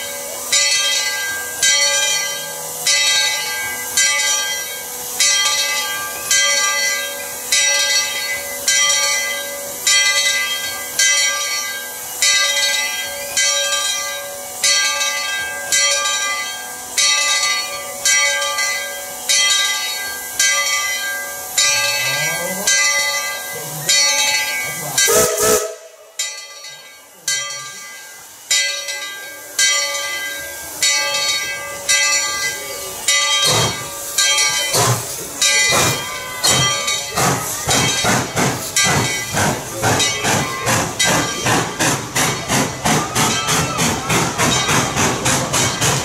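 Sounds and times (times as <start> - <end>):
steam locomotive bell ringing: 0.0 - 46.0.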